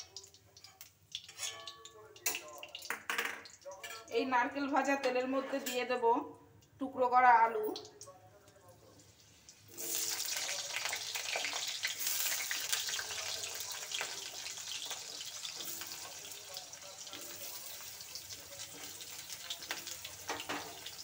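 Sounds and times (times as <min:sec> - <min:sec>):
potatoes sizzling in oil: 0:09.0 - 0:21.0.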